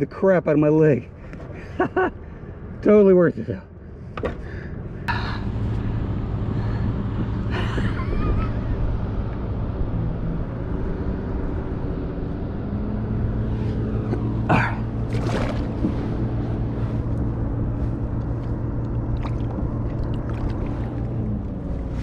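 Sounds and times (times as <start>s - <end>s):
wind: 0.0s - 22.0s
water noise: 13.7s - 17.4s, 18.1s - 22.0s.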